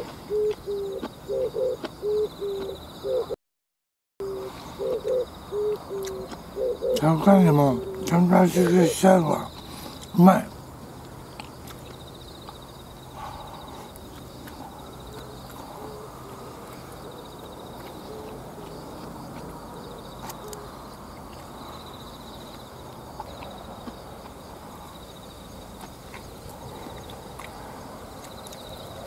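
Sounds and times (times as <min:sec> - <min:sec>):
insects trilling: 0:00.0 - 0:03.4, 0:04.2 - 0:29.0
low hooting bird calls: 0:00.0 - 0:03.4, 0:04.2 - 0:10.2, 0:12.6 - 0:19.1.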